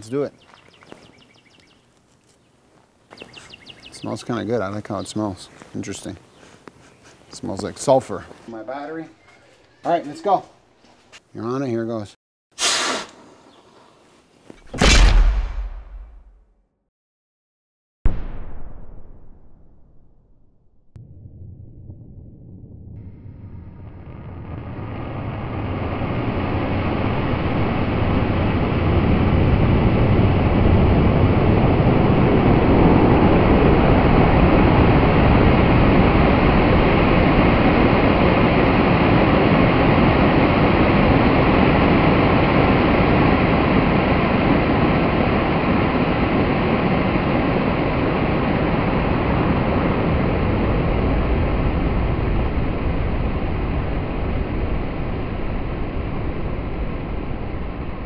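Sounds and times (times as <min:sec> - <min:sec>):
rocket engine roaring: 0:18.1 - 0:58.0.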